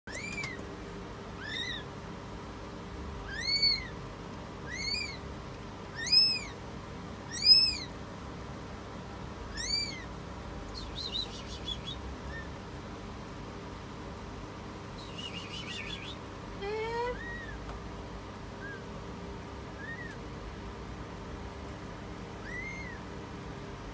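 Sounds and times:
kitten mewing: 1.4s - 1.9s, 3.2s - 4.0s, 4.6s - 5.2s, 5.9s - 6.6s, 7.3s - 7.9s, 9.5s - 10.1s, 16.6s - 17.6s, 22.4s - 23.0s.

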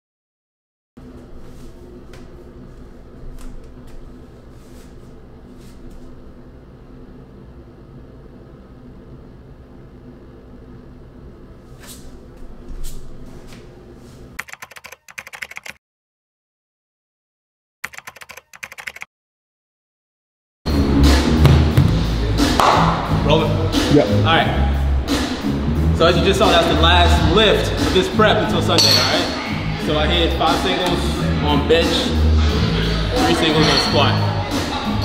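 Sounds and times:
rapid typing: 14.4s - 15.8s, 17.8s - 19.1s
scattered clicks: 14.4s - 15.8s, 17.8s - 19.1s.

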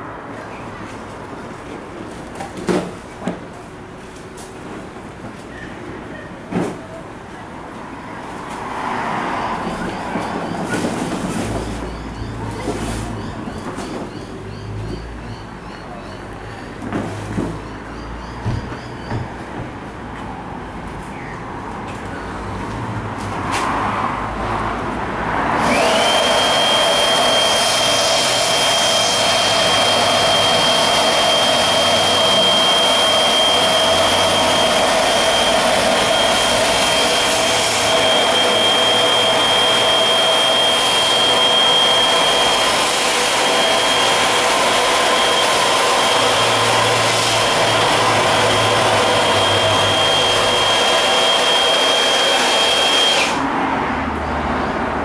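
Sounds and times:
air inflator whining: 25.6s - 53.5s.

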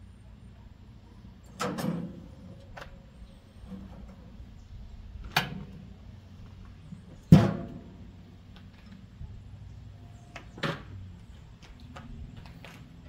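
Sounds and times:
metal grill lid banging shut: 1.5s - 2.3s, 7.3s - 8.0s.

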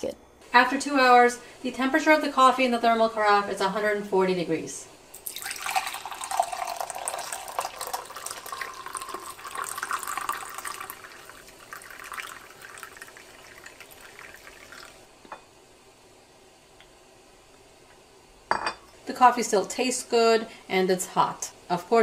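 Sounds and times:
coffee pouring into a mug: 5.2s - 15.1s.

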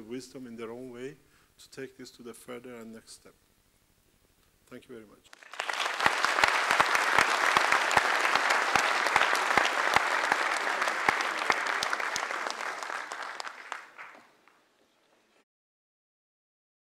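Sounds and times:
audience applauding: 5.3s - 14.6s.

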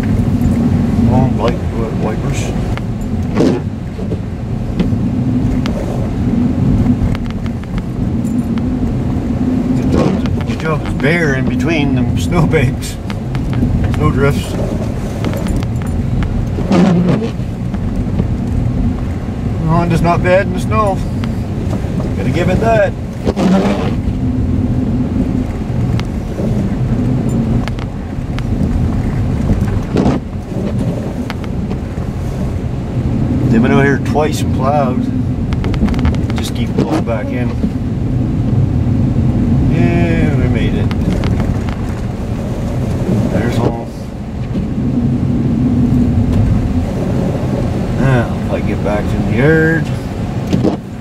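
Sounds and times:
car engine and road drone: 0.0s - 51.0s
sharp clicks and knocks: 6.9s - 8.7s, 9.8s - 11.6s, 13.0s - 19.2s, 25.5s - 31.9s, 35.5s - 37.8s, 40.8s - 42.1s.

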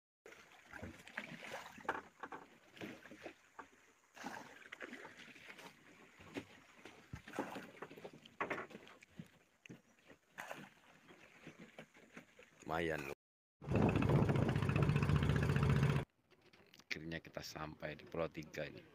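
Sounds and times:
water splashing against boat hull: 0.3s - 12.6s.

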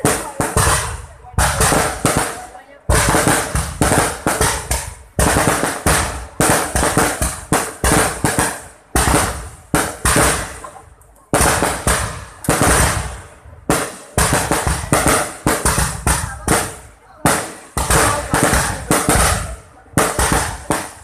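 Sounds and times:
firework shells launching and bursting: 0.0s - 10.8s.

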